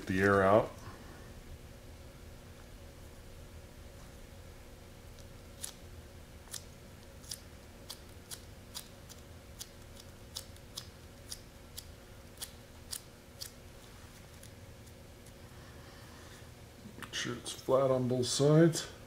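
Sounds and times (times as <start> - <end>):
small scissors snipping: 5.2 - 5.8, 6.5 - 13.6.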